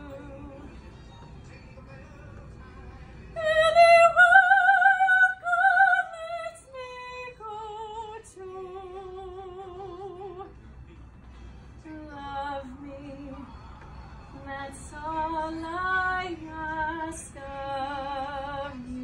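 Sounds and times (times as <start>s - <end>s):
woman singing operatically: 0.0s - 0.8s, 3.4s - 10.5s, 11.8s - 13.5s, 14.4s - 19.0s.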